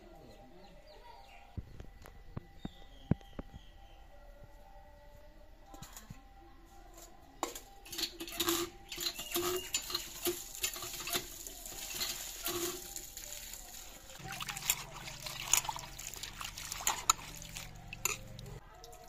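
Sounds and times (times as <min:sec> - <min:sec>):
pump handle creaking: 0:07.9 - 0:13.2, 0:14.2 - 0:18.6
water splashing into bowl: 0:09.0 - 0:18.6.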